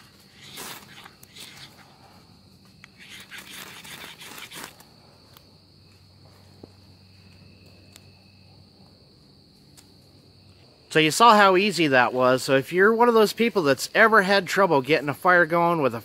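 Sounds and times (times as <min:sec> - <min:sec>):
insect trill: 0:00.0 - 0:16.0
ferro rod scraped with striker: 0:02.8 - 0:04.8.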